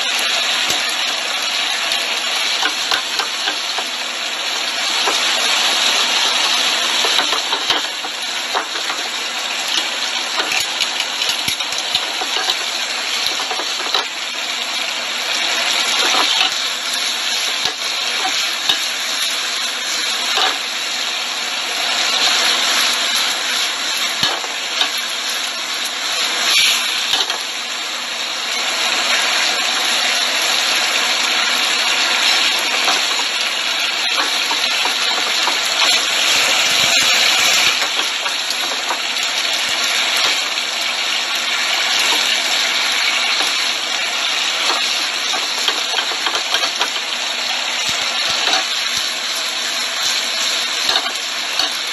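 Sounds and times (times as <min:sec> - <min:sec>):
chicken wings sizzling in sauce: 0:00.0 - 0:51.9.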